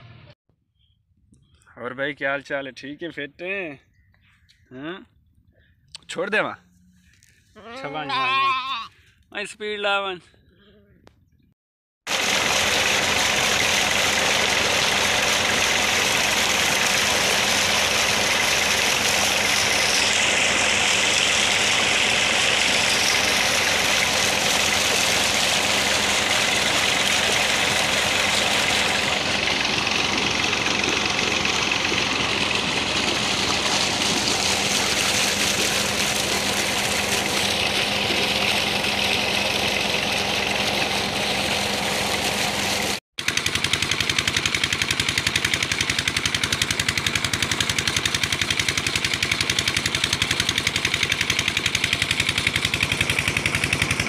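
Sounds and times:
tractor diesel engine running: 12.1 - 54.0.

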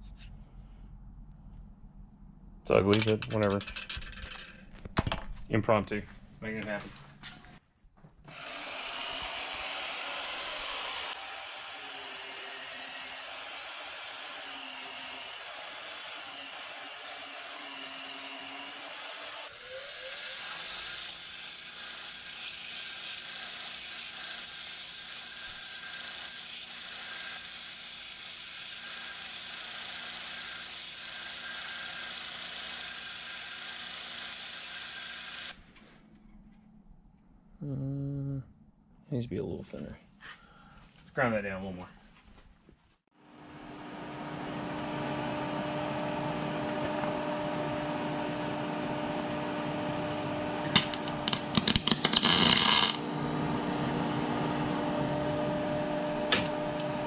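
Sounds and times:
band saw cutting steel: 8.3 - 35.6, 50.6 - 57.0
belt grinder grinding steel: 8.3 - 35.6, 50.6 - 53.9.

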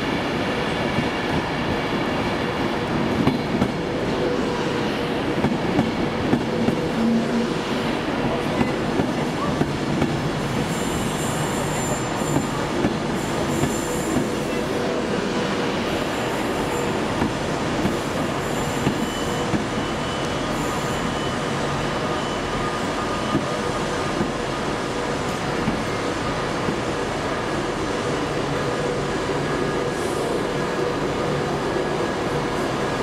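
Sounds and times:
train wheels squealing: 10.6 - 14.8, 15.9 - 24.1.

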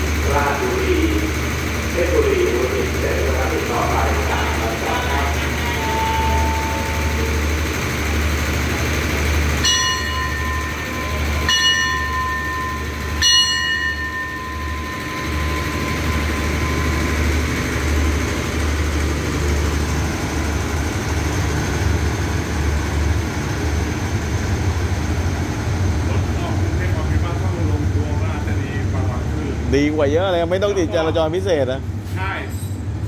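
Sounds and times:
station bell ringing: 0.0 - 25.5
diesel train engine rumble: 0.0 - 33.0.

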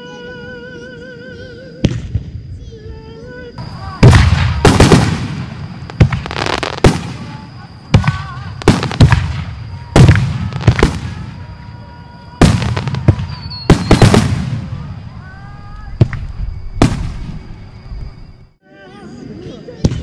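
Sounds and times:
fireworks booming: 3.6 - 18.5.

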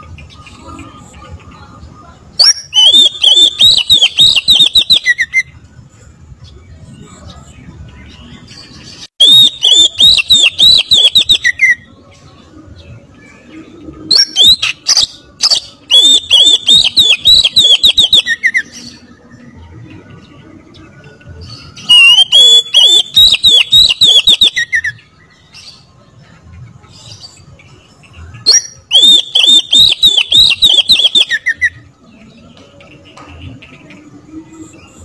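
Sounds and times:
songbird fast whistled song: 2.4 - 5.6, 8.1 - 11.9, 13.4 - 19.5, 21.4 - 25.9, 26.9 - 35.0.

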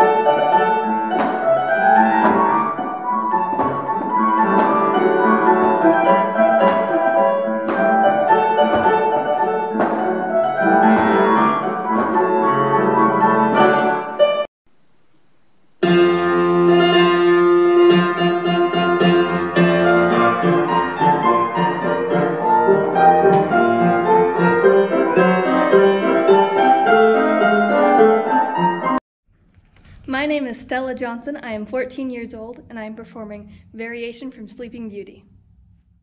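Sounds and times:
classical piano music: 0.0 - 14.5, 15.8 - 29.0.

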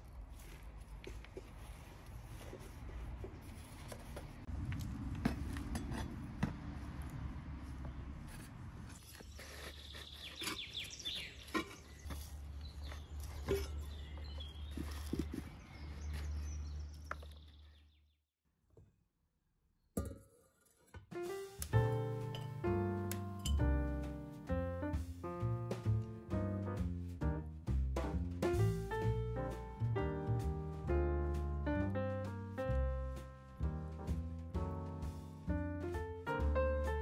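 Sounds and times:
low outdoor rumble: 0.0 - 9.0
trowel scraping soil: 8.2 - 16.9
bird chirps: 9.2 - 18.2.

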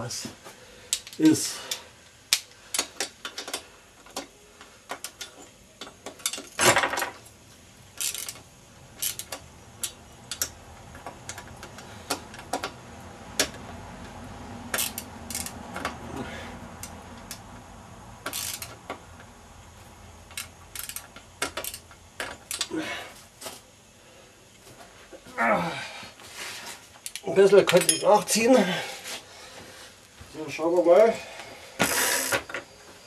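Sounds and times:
hand tools clinking on metal: 27.1 - 28.6.

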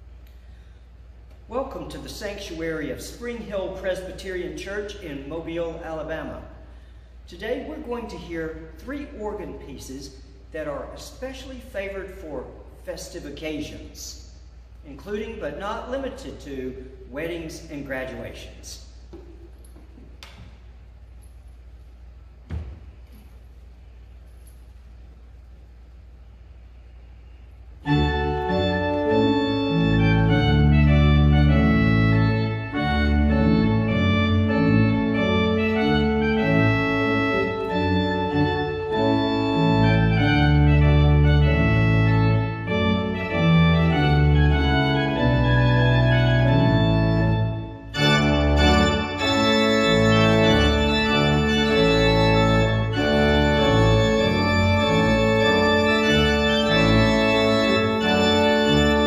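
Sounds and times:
church organ playing: 0.0 - 14.2, 27.5 - 59.0.

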